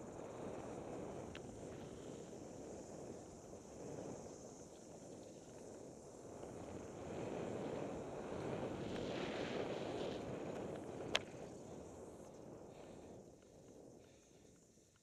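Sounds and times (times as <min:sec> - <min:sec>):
wind rushing over microphone: 0:00.0 - 0:14.0
bike tyres on dirt: 0:04.8 - 0:14.6.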